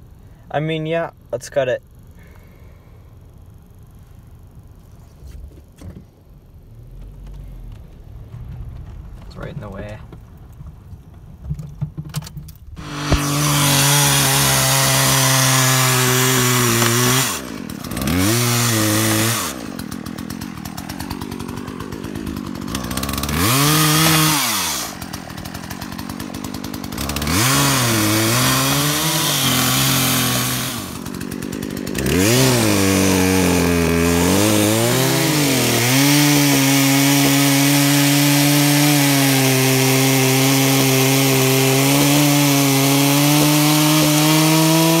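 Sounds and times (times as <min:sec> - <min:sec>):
chainsaw cutting log: 0:12.6 - 0:45.0.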